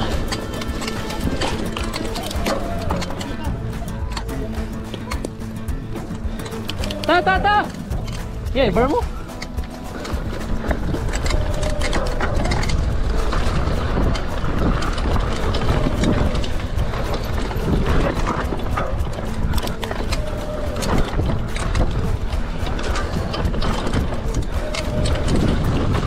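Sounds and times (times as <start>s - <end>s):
bike knocks and clatters: 0.0s - 26.0s
mountain bike rattling: 0.0s - 26.0s
wind rushing on microphone: 10.0s - 26.0s.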